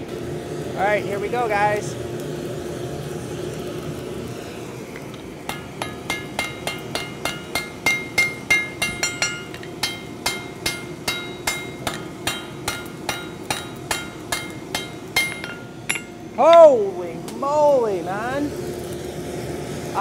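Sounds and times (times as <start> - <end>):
forge blower humming: 0.0 - 20.0
hammer striking metal on anvil: 5.5 - 16.7.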